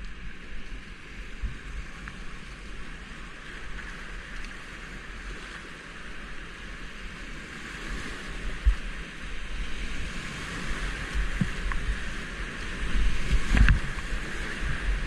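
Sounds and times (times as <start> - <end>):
whitewater rushing around kayak: 0.0 - 15.0
low thumps on kayak hull: 11.1 - 12.0, 13.0 - 14.2.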